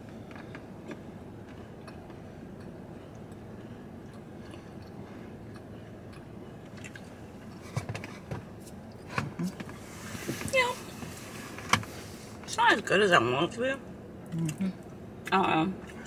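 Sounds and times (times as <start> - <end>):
people chewing cookies: 0.2 - 9.6, 14.2 - 16.0
car cabin hum: 6.7 - 13.6.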